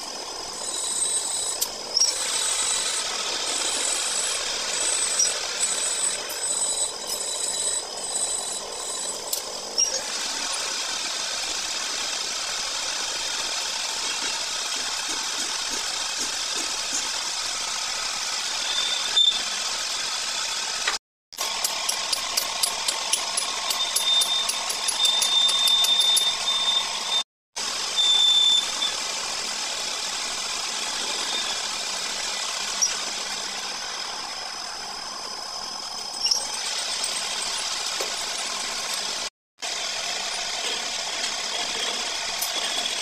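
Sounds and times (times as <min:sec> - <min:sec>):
lathe tool cutting metal: 0:00.0 - 0:43.0
metal lathe running: 0:00.0 - 0:43.0
clinks and knocks: 0:21.4 - 0:26.4, 0:40.6 - 0:43.0.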